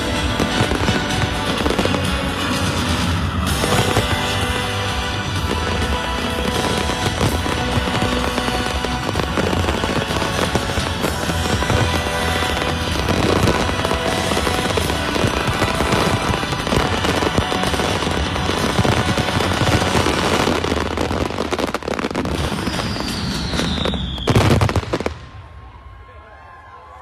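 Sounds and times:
music: 0:00.0 - 0:25.2
fireworks bangs and crackling: 0:00.0 - 0:25.7
falling firework whistle: 0:19.4 - 0:25.4.

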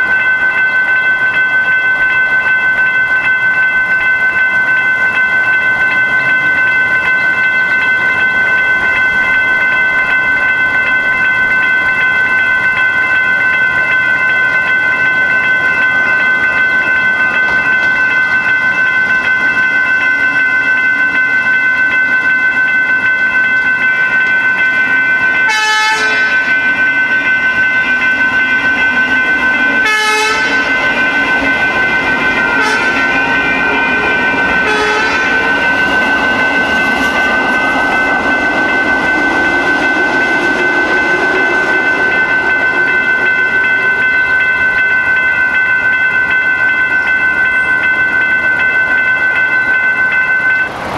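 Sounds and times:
railroad crossing bell ringing: 0:00.0 - 0:50.9
horn toot: 0:34.7 - 0:35.3.

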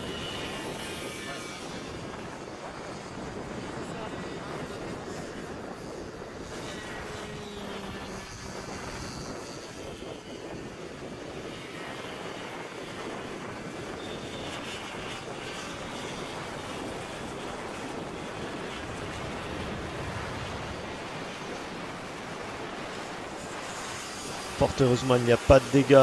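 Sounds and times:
kart engines buzzing: 0:00.0 - 0:26.0
wind noise on microphone: 0:00.0 - 0:26.0.

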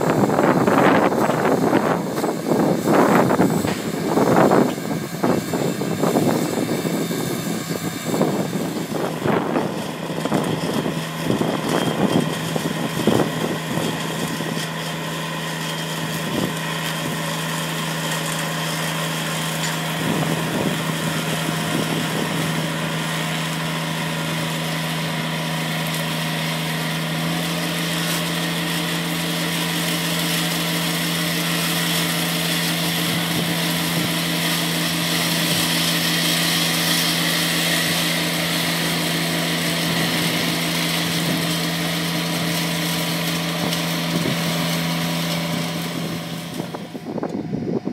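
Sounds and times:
hedge trimmer blade cutting hedge: 0:00.0 - 0:47.9
tractor engine running: 0:00.0 - 0:47.9
sharp cracks and knocks: 0:03.6 - 0:04.8.

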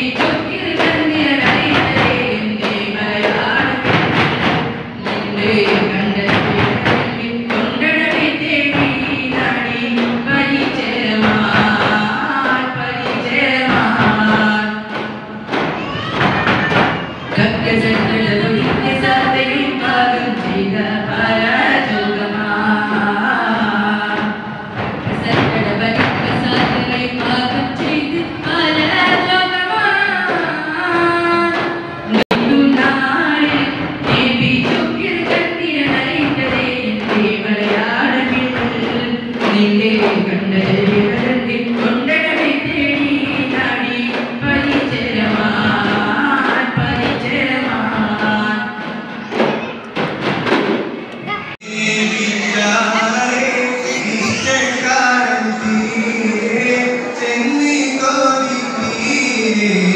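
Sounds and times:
group singing a chant: 0:00.0 - 0:15.7, 0:51.6 - 0:59.9
boys singing in unison: 0:00.0 - 0:29.4, 0:30.3 - 0:50.0, 0:51.4 - 0:59.9
frame drum strikes: 0:00.1 - 0:29.4.

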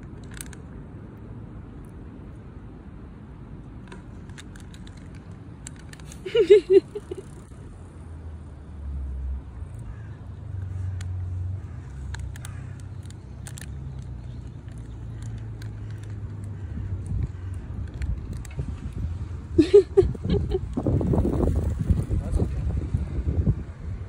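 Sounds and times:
vehicle engine rumbling: 0:00.0 - 0:24.0
faint clicks: 0:09.7 - 0:18.9.

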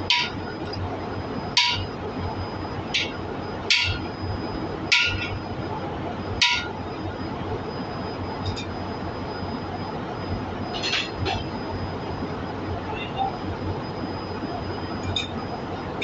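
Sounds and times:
hammer striking metal: 0:03.7 - 0:04.0, 0:04.9 - 0:05.2, 0:06.4 - 0:06.7.

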